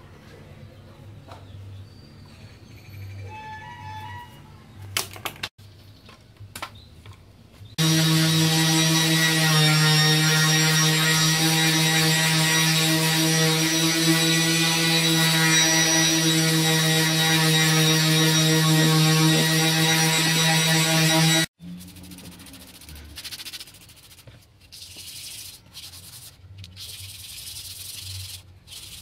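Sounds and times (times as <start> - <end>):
electric sander humming: 7.8 - 21.5.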